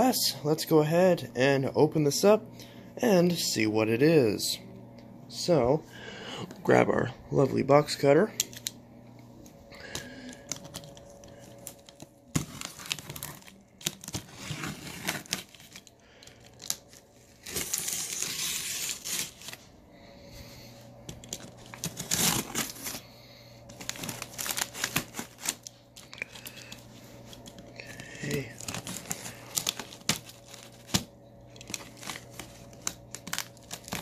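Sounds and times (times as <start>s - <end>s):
packing tape tearing: 9.8s - 19.6s, 21.1s - 23.0s, 23.7s - 34.0s
cardboard crinkling: 10.0s - 19.7s, 21.1s - 34.0s.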